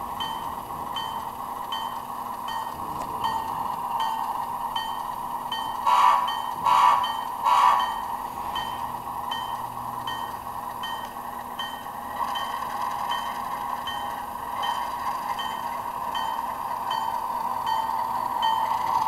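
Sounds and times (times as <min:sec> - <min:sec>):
model locomotive bell ringing: 0:00.0 - 0:19.0
locomotive horn blasts: 0:05.8 - 0:08.0.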